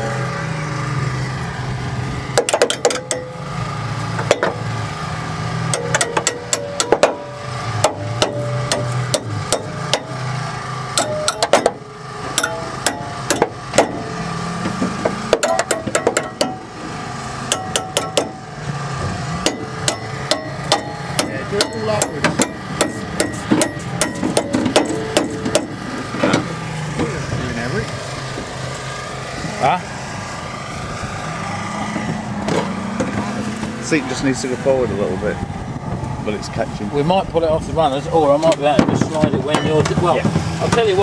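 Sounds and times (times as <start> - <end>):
hammer striking car steel: 2.3 - 3.4, 4.2 - 4.6, 5.7 - 10.3, 10.9 - 16.8, 17.4 - 18.5, 19.4 - 26.5, 38.5 - 41.0.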